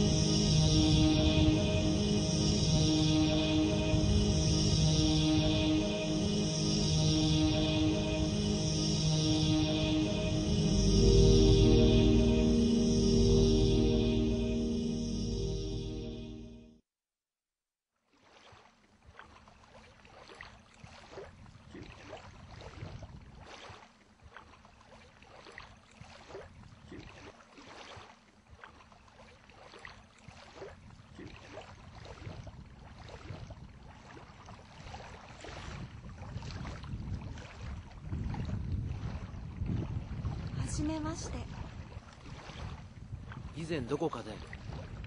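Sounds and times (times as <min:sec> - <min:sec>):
wind rumbling on microphone: 0:00.0 - 0:12.6, 0:21.2 - 0:23.5, 0:31.8 - 0:45.0.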